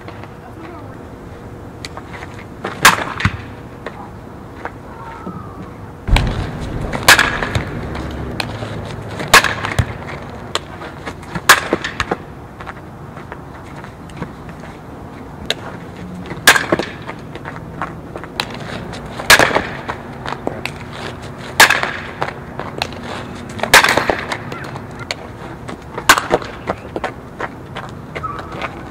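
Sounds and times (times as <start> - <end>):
bat cracking softball: 2.7 - 3.9, 6.1 - 12.2, 16.3 - 17.2, 18.2 - 20.9, 21.5 - 27.2.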